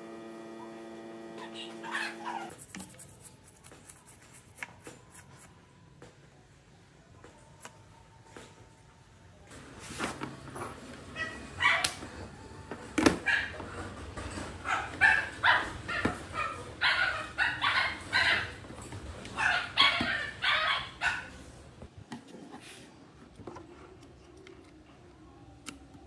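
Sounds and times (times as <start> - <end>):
dog barking: 1.5 - 2.5, 11.2 - 12.0, 13.2 - 13.6, 14.6 - 18.6, 19.4 - 21.4.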